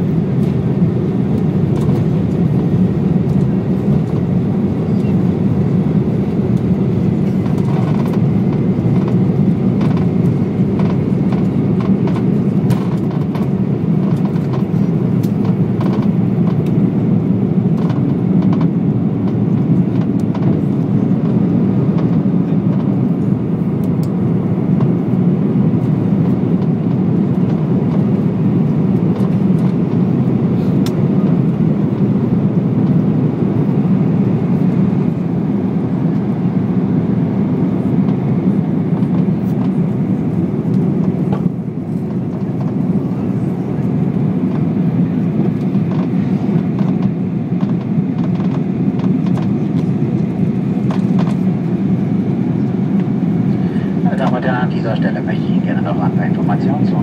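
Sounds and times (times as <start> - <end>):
jet engines roaring: 0.0 - 57.0
rushing airflow: 50.4 - 57.0.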